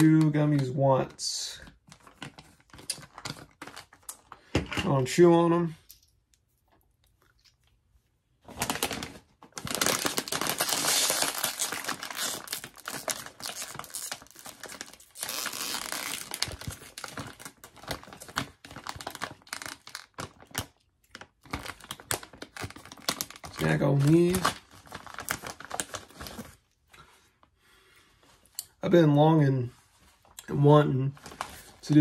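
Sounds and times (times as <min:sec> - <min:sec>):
chip bag crinkling: 0:01.8 - 0:04.4, 0:08.5 - 0:26.6.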